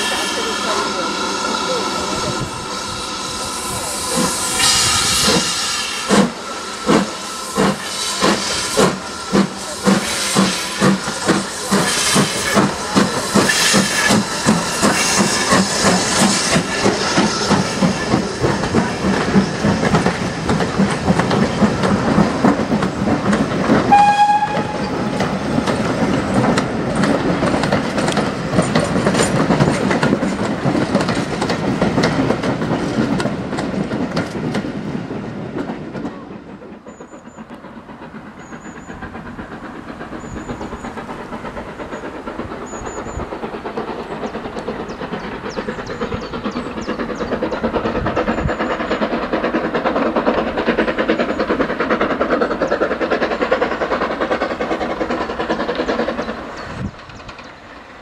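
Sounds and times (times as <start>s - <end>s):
distant steam locomotive approaching: 0.0s - 58.0s
steam train coaches rumbling past: 0.0s - 58.0s
wheels clicking over rail joints: 9.8s - 34.8s, 35.5s - 58.0s
steam whistle: 23.9s - 25.1s
birds chirping: 41.9s - 49.1s.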